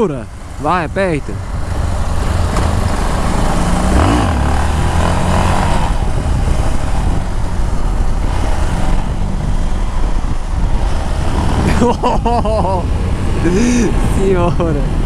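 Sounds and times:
wind on microphone: 1.4 - 11.7
motorcycle engine revving: 1.4 - 11.9.

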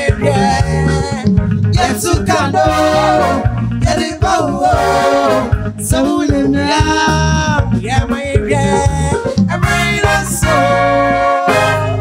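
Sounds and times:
bass line: 0.0 - 12.0
upbeat song with sung vocals: 0.0 - 12.0.

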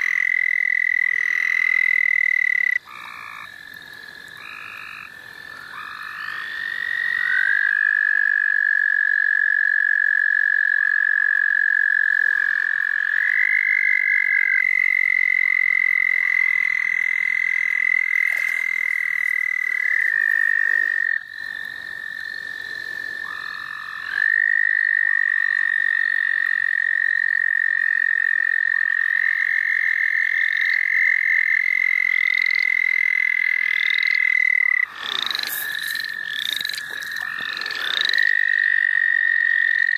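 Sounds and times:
toads trilling: 0.0 - 39.9.

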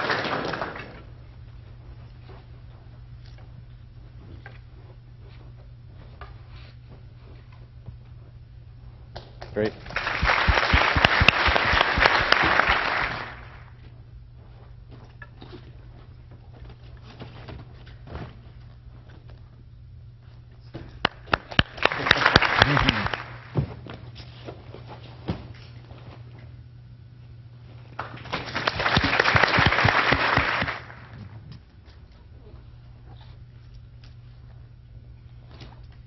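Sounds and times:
sharp claps: 0.0 - 1.0, 9.4 - 13.7, 21.0 - 23.5, 28.0 - 31.2
audience applauding: 0.0 - 1.1, 9.7 - 13.8, 21.0 - 23.5, 28.0 - 31.2.

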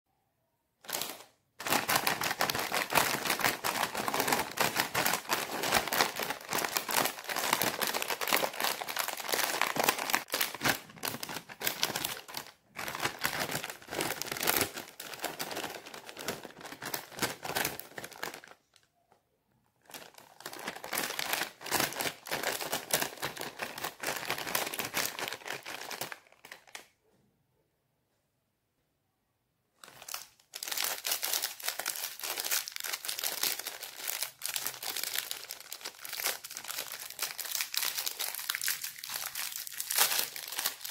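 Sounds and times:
snack packet crinkling: 0.8 - 18.7, 19.8 - 26.9, 29.8 - 40.9.

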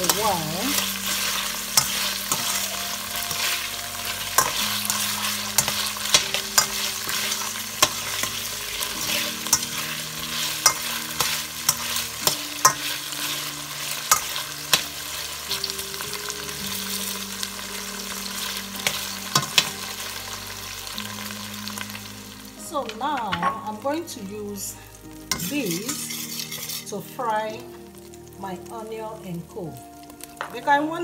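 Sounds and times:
steak sizzling in a frying pan: 0.0 - 31.0
spatula scraping a pan: 0.1 - 14.8, 25.3 - 27.0.

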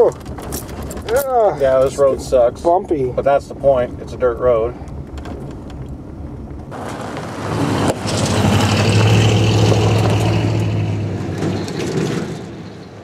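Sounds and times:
pickup truck engine drone: 0.0 - 13.0
tyres on gravel: 0.0 - 13.0.

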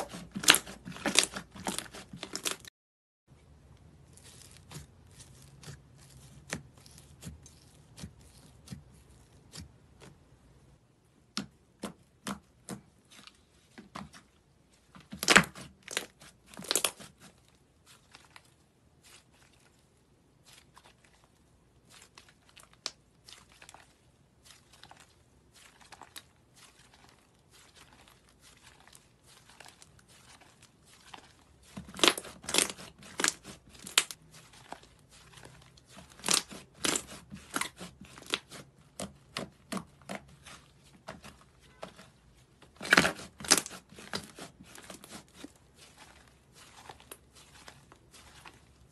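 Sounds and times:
slime clicking and crackling: 27.8 - 40.6, 42.8 - 48.6.

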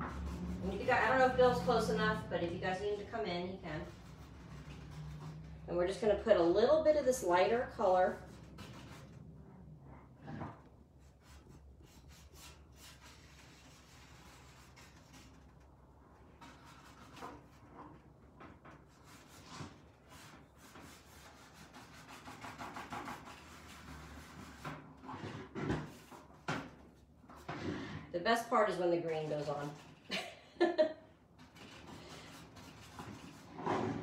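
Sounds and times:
paint brush scrubbing on metal: 0.0 - 5.8, 11.0 - 15.6, 28.8 - 30.1, 31.5 - 34.0.

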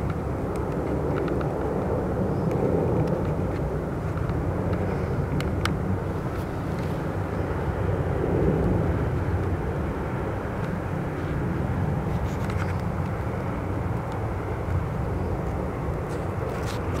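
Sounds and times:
jet engines rumbling: 0.0 - 17.0.

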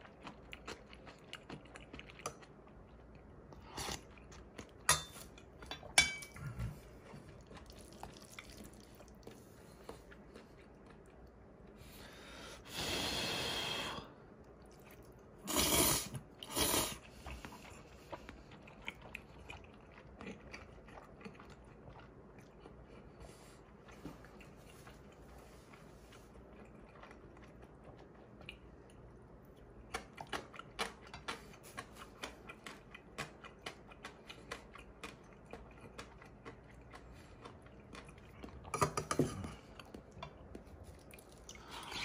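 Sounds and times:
chewing and crunching food: 0.0 - 12.2, 14.3 - 15.5, 16.2 - 42.0
loud slurping: 15.5 - 17.0.

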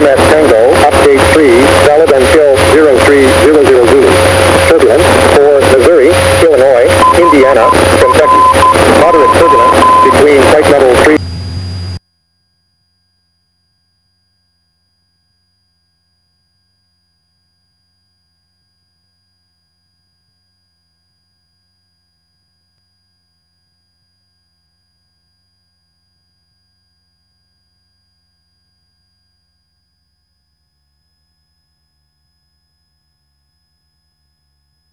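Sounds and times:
intercom radio audio: 0.0 - 11.2
low hum on the line: 0.0 - 34.9.

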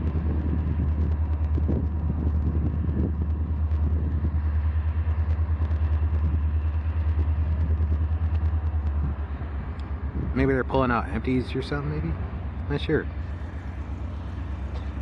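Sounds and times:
locomotive diesel engine throbbing: 0.0 - 15.0.

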